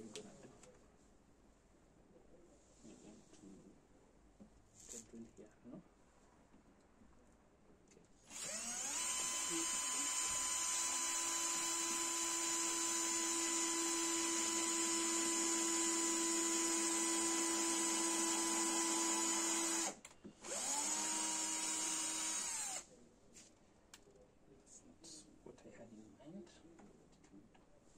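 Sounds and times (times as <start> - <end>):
electric drill boring wood: 8.3 - 22.8.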